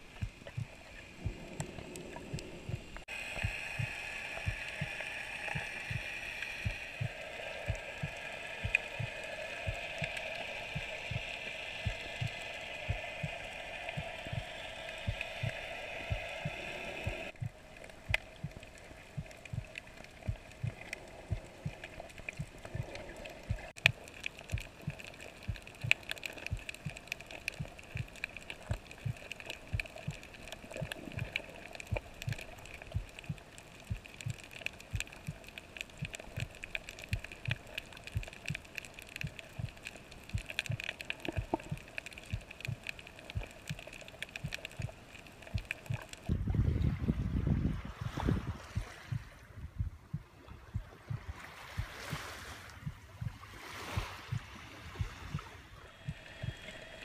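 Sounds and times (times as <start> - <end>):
low underwater thumps and clicks: 0.0 - 57.0
underwater hiss of moving water: 0.1 - 23.8, 53.7 - 57.0.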